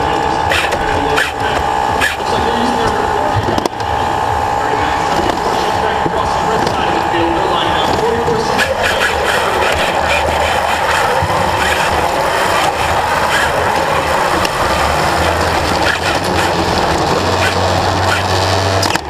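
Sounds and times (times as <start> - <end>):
robot motors whirring: 0.0 - 4.0, 7.8 - 19.0
low hum: 0.0 - 19.0
steady noisy din: 0.0 - 19.0.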